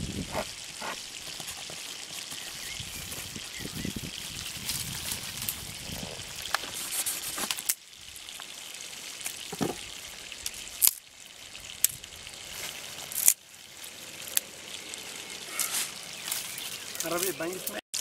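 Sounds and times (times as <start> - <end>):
flowing river water: 5.8 - 17.5
dry twigs snapping: 13.1 - 13.4.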